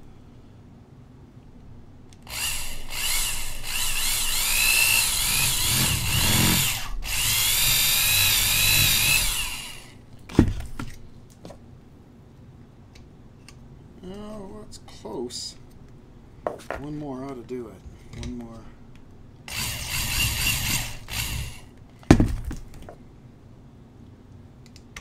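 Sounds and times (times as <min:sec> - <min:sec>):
electric drill cutting metal lid: 0:02.3 - 0:10.0, 0:19.5 - 0:21.7.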